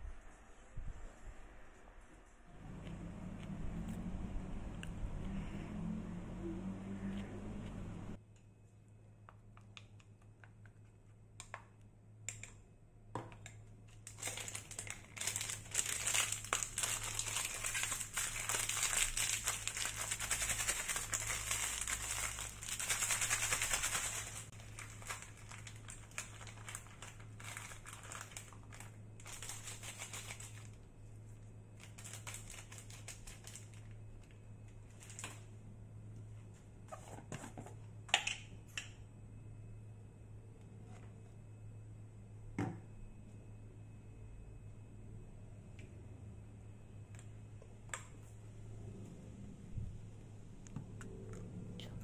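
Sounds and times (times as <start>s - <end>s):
packaging crinkling: 14.0s - 30.8s, 31.8s - 34.0s.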